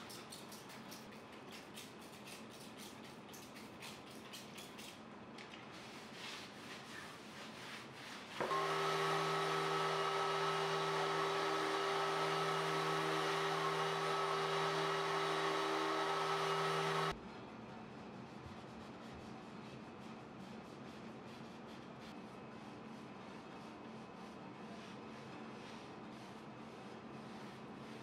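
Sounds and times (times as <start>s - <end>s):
orbital sander running: 8.4s - 17.2s.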